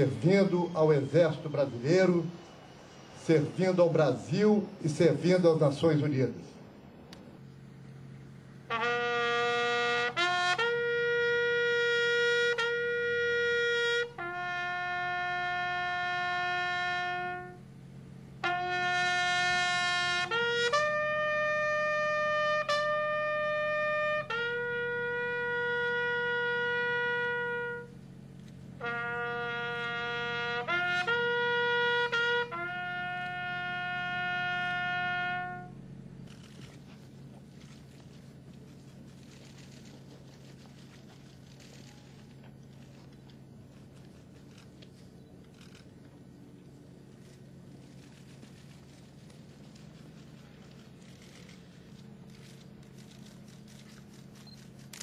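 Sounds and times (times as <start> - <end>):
bugle call on brass horn: 0.0 - 2.5, 8.6 - 36.7.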